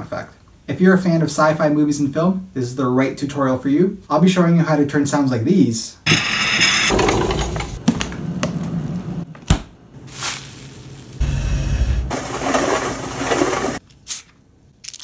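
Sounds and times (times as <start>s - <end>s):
sliding glass door rolling: 6.9s - 7.9s, 12.1s - 13.8s
plastic bag crinkling: 10.0s - 11.2s.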